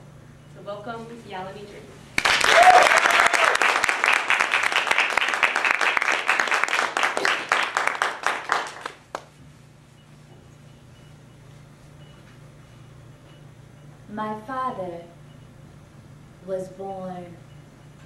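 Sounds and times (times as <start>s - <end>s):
audience applauding: 2.2s - 9.3s.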